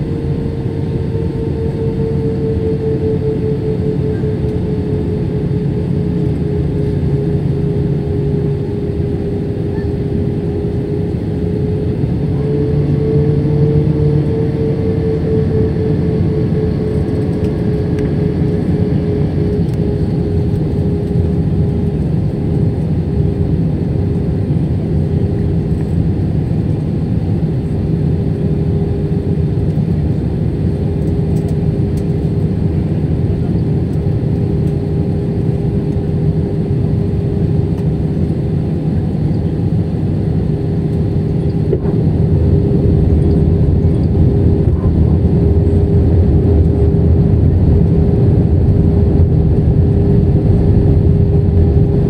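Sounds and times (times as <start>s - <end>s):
jet engines and airflow rushing: 0.0s - 52.0s.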